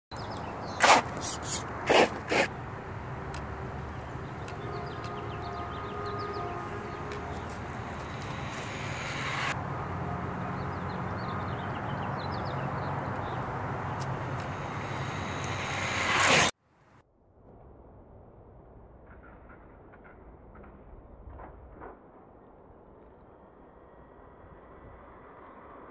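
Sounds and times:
small birds chirping: 0:00.1 - 0:02.5, 0:03.7 - 0:08.1, 0:10.6 - 0:15.0
short loud burst of noise: 0:14.2 - 0:16.5.

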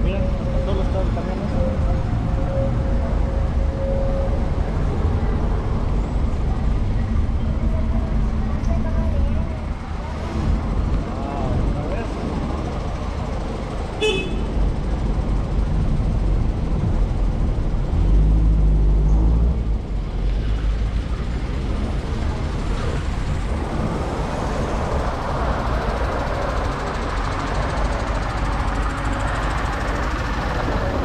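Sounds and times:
bus engine rumbling: 0:00.0 - 0:31.0
short horn beep: 0:14.0 - 0:14.5.

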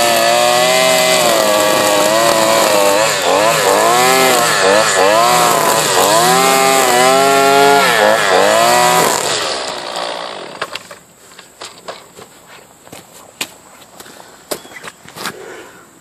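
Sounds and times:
string trimmer engine revving: 0:00.0 - 0:10.8.

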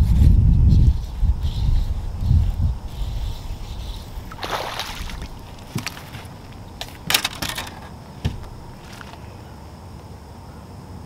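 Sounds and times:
fish splashing in water: 0:04.2 - 0:07.3
rattle of clicks: 0:05.7 - 0:09.2
sharp knocks: 0:07.0 - 0:08.5.

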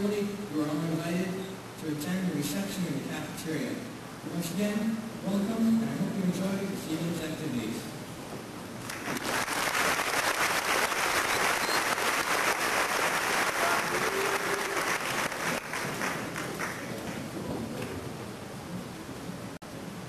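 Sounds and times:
audience applauding: 0:08.8 - 0:18.0.

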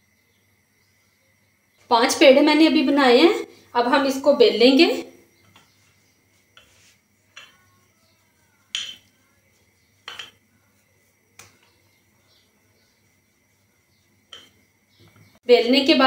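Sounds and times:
rolling pin knocking on stone board: 0:08.7 - 0:09.2, 0:10.0 - 0:10.4.

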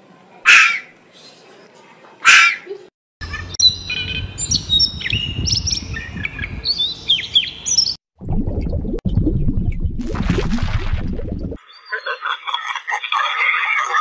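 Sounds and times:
robin singing: 0:03.2 - 0:08.0.

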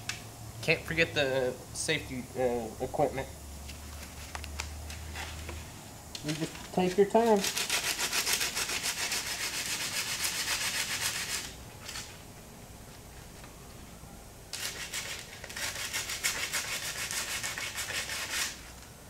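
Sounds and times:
sandpaper rubbing back and forth: 0:07.3 - 0:12.1, 0:14.6 - 0:18.7.

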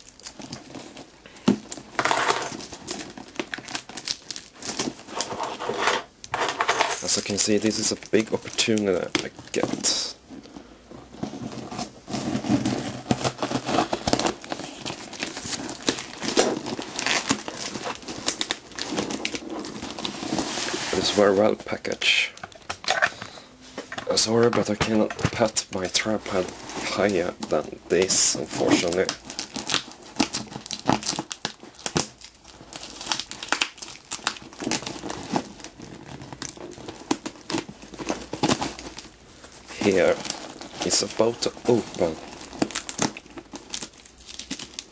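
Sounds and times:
cardboard and tape tearing: 0:11.2 - 0:21.5, 0:24.6 - 0:44.9.

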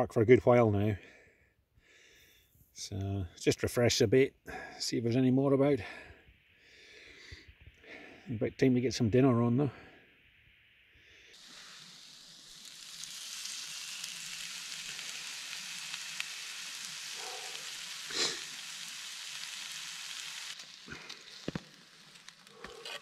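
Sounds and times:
meat sizzling on a hot slate: 0:10.4 - 0:23.0.

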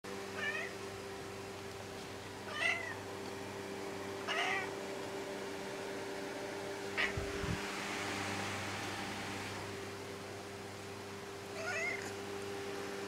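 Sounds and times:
steady low hum: 0:00.1 - 0:13.0
cat meowing: 0:00.4 - 0:00.7, 0:02.5 - 0:03.0, 0:04.3 - 0:04.8, 0:11.6 - 0:12.2.

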